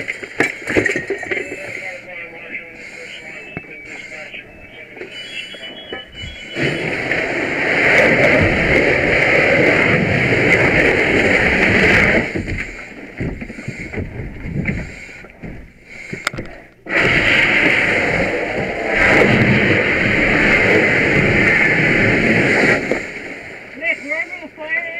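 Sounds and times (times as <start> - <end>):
fire hose spraying water: 16.9 - 24.5.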